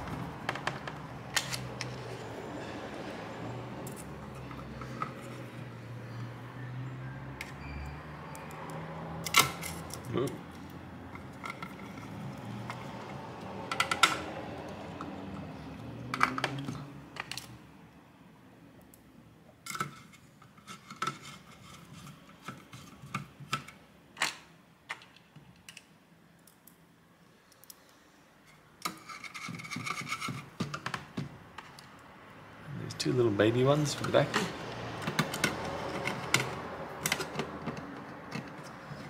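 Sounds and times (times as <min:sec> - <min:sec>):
screwdriver clicks and metal taps: 0:00.4 - 0:02.0, 0:13.7 - 0:14.3, 0:33.8 - 0:39.0.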